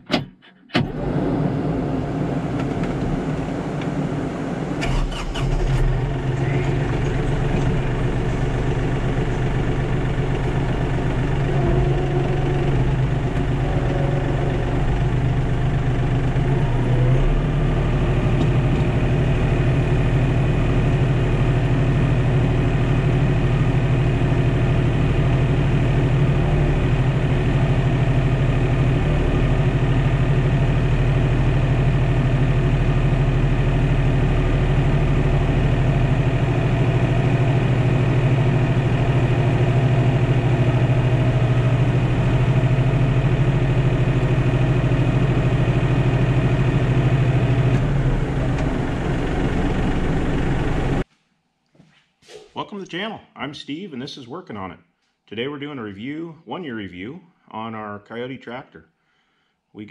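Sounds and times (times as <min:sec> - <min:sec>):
tractor diesel engine running: 0:00.7 - 0:51.1.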